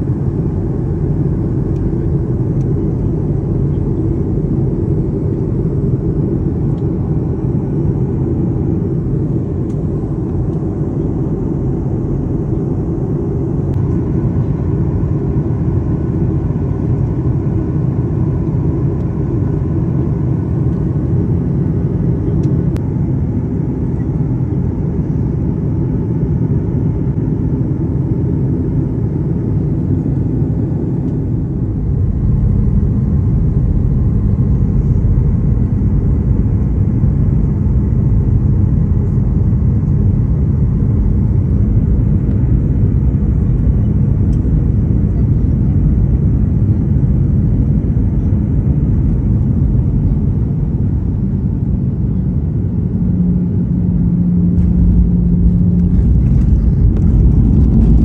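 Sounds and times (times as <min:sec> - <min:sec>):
airliner cabin and engine rumble: 0:00.0 - 0:58.0.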